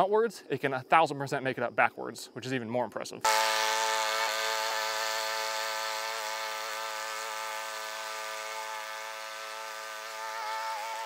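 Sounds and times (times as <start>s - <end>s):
mower engine running at high speed: 3.3s - 11.0s.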